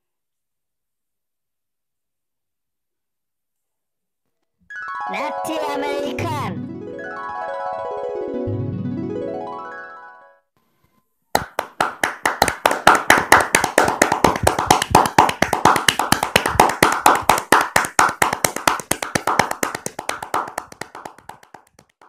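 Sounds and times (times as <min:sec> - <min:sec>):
hands clapping: 0:11.4 - 0:22.0.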